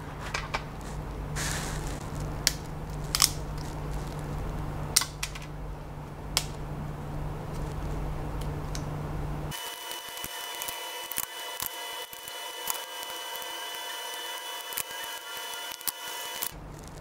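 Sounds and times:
steady low hum: 0.0s - 17.0s
flush cutters snipping clicks: 6.3s - 6.6s, 9.5s - 16.6s.

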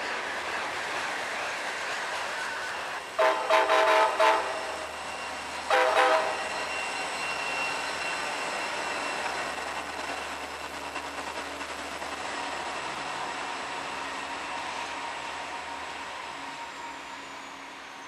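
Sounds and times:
passing train: 0.0s - 18.0s
locomotive air horn blasts: 3.2s - 4.7s, 5.7s - 6.4s.

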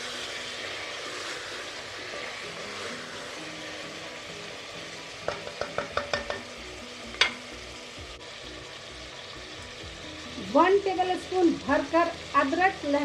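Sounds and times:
meat sizzling in a pot: 0.0s - 13.0s
spatula knocking against pot: 5.2s - 6.5s.

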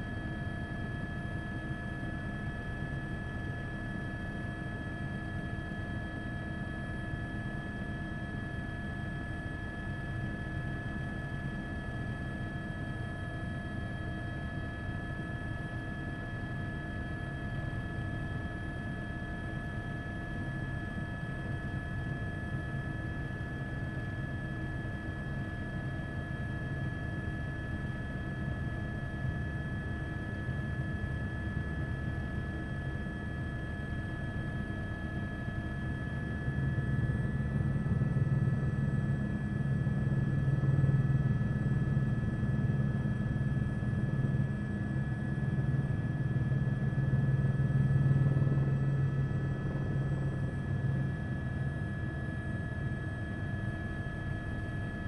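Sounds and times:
helicopter rotor rumble: 0.0s - 55.0s
helicopter engine whine: 24.0s - 55.0s.

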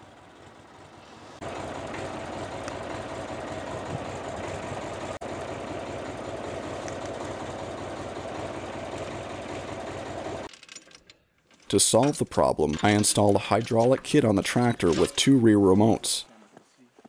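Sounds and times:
diesel tractor engine running: 0.0s - 10.5s.

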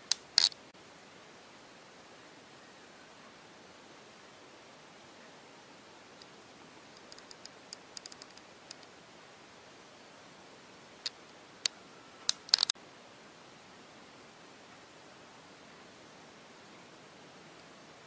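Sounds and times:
sharp clicks: 0.0s - 0.6s, 7.0s - 8.9s, 11.0s - 12.8s
steady hiss: 0.0s - 18.0s.

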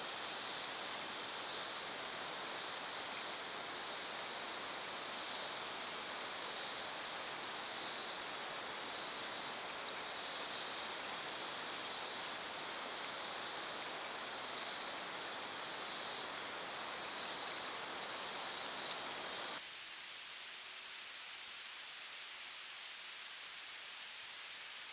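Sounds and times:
insect chorus: 0.0s - 24.9s
steady hiss: 0.0s - 24.9s
harsh static hiss: 19.4s - 24.9s.

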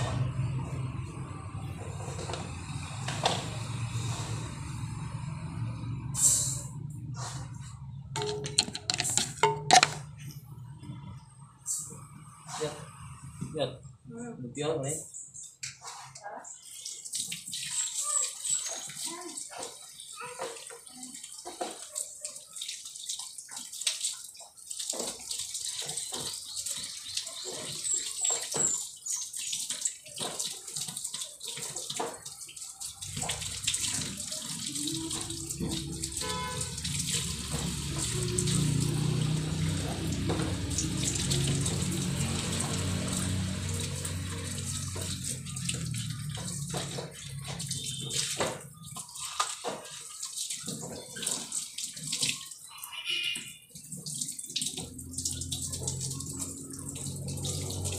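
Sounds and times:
water splashing: 7.2s - 10.3s, 15.8s - 57.9s
water running into a container: 7.4s - 10.4s, 16.1s - 57.9s.

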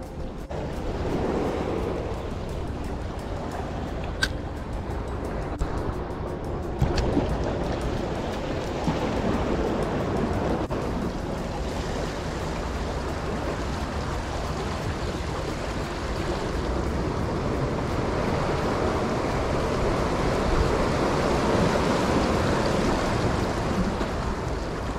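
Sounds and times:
wind rumble on microphone: 0.0s - 24.9s
waves washing against rocks: 6.8s - 24.9s.

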